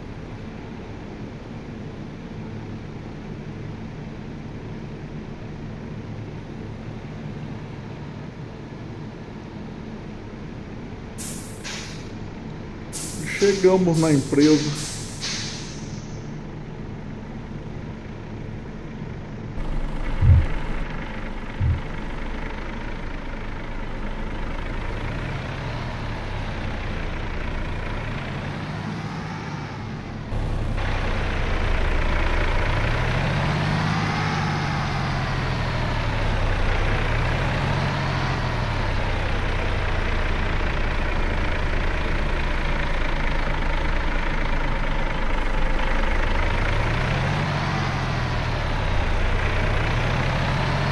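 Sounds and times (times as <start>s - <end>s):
diesel truck engine revving: 11.2s - 50.9s
short thumps: 19.6s - 22.5s.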